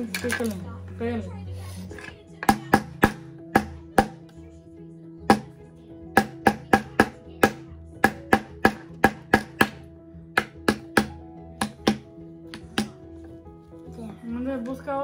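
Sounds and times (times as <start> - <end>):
hammer striking nail into wood: 2.4 - 4.3, 5.3 - 5.6, 6.2 - 13.0.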